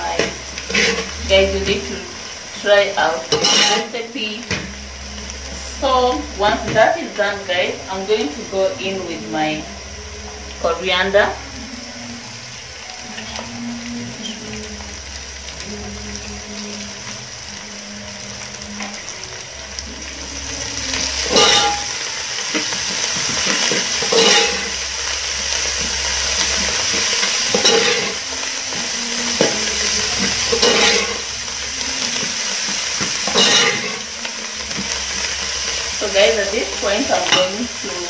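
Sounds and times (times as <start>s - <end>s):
onions sizzling in a pot: 0.0s - 38.0s
metal spoon scraping a pot: 3.3s - 4.0s, 20.9s - 24.8s, 26.9s - 31.3s.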